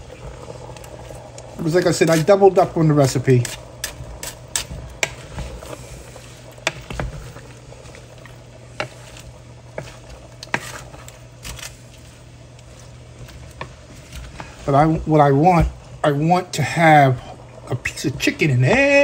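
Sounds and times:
cooking hiss: 0:00.0 - 0:19.0
steady low hum: 0:00.0 - 0:19.0
wooden spoon scraping metal pot: 0:08.7 - 0:14.6.

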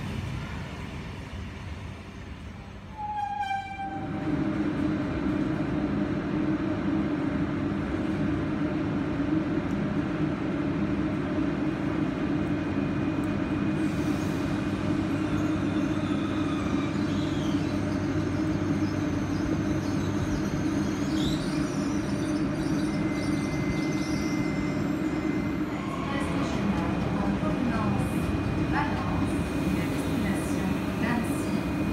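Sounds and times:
trains humming: 0:00.0 - 0:31.9.

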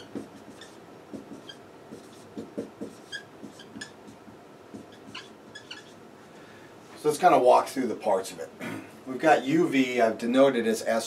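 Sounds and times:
marker squeaking on whiteboard: 0:00.0 - 0:06.0.

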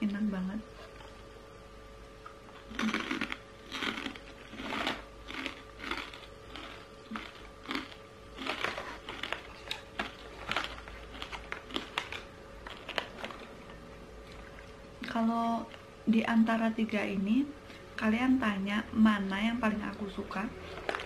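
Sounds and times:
crunchy chewing: 0:02.2 - 0:15.1, 0:20.6 - 0:21.0
plastic bags crinkling: 0:02.7 - 0:13.5.

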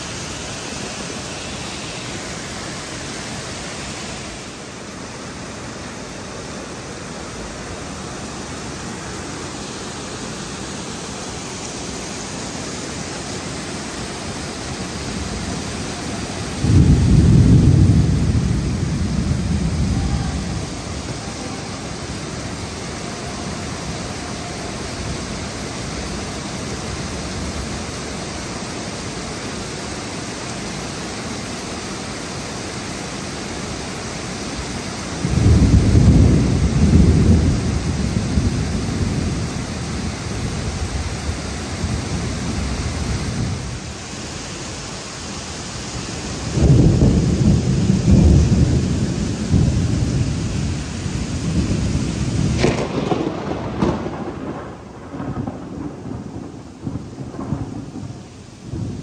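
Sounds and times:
heavy rain falling: 0:00.0 - 0:59.0
thunder rumbling: 0:12.8 - 0:28.0, 0:35.2 - 0:44.0, 0:46.0 - 0:59.0.

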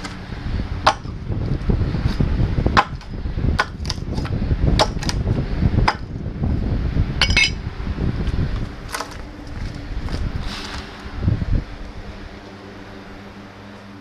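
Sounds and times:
hatchet chopping wood: 0:00.8 - 0:01.1, 0:02.8 - 0:05.2, 0:05.8 - 0:06.1.

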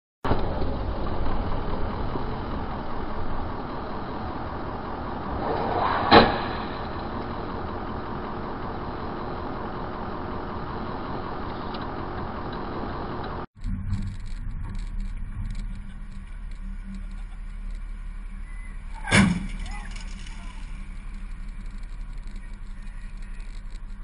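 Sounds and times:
car engine and road noise: 0:00.2 - 0:24.0
car crash: 0:05.2 - 0:08.4, 0:13.6 - 0:24.0.

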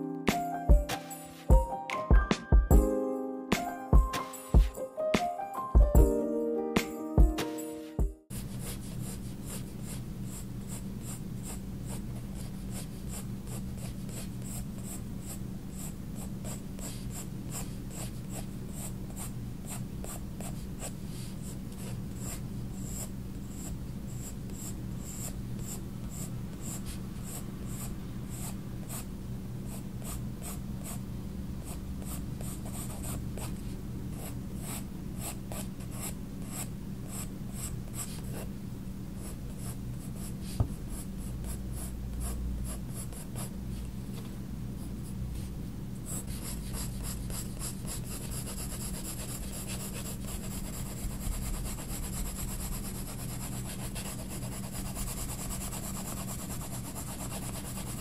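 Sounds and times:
pencil scratching on paper: 0:08.3 - 0:29.0, 0:29.7 - 0:31.0, 0:32.0 - 0:33.6, 0:34.2 - 0:38.5, 0:39.2 - 0:43.5, 0:46.1 - 0:58.0.

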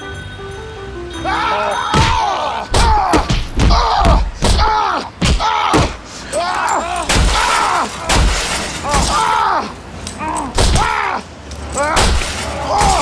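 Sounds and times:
high-pitched yelling: 0:01.2 - 0:08.1.

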